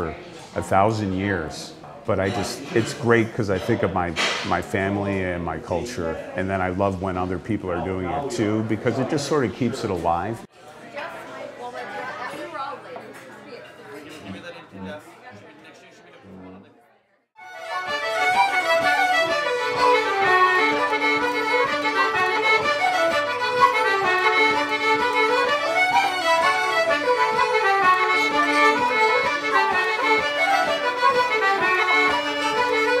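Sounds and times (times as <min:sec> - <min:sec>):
lively traditional dance tune: 0:17.4 - 0:33.0.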